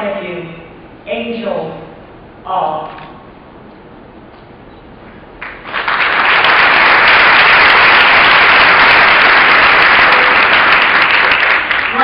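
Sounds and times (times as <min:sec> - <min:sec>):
audience applause: 0:05.4 - 0:12.0.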